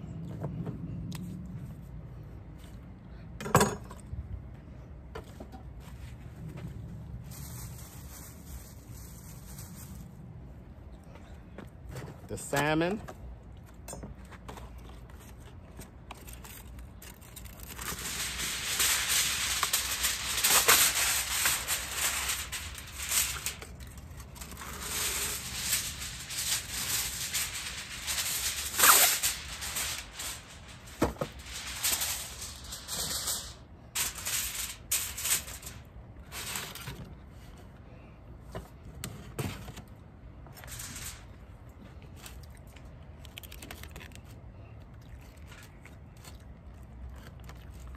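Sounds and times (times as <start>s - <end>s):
aluminium foil crinkling: 7.2s - 10.3s, 14.9s - 37.0s, 40.5s - 44.4s, 45.1s - 47.9s.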